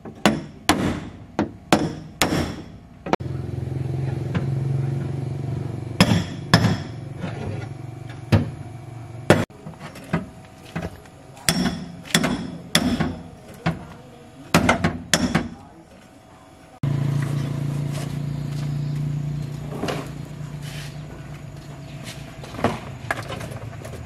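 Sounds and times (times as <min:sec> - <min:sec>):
low motor hum: 0:02.8 - 0:12.0, 0:15.6 - 0:24.0.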